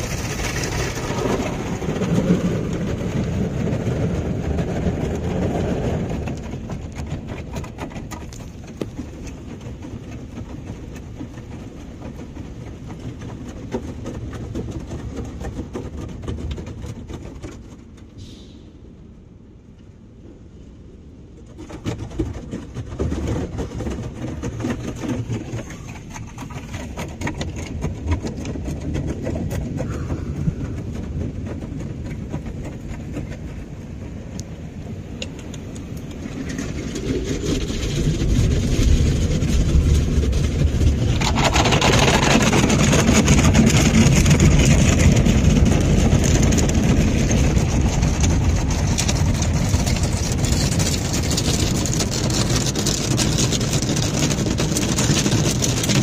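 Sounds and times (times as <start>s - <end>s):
water spraying and splashing: 0.0s - 15.7s, 35.0s - 56.0s
car wash gantry rumble: 0.0s - 56.0s
spinning foam brushes: 36.0s - 56.0s.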